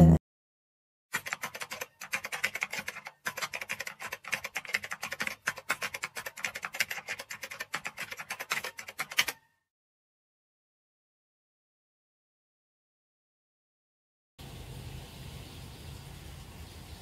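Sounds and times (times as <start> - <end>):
rapid keyboard typing clicks: 1.2 - 9.5.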